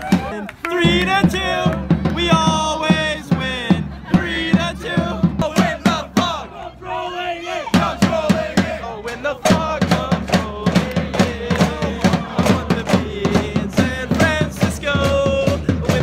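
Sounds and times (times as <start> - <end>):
pounding drumbeat: 0.0 - 6.4, 7.7 - 16.0
crowd chanting in song: 0.0 - 16.0.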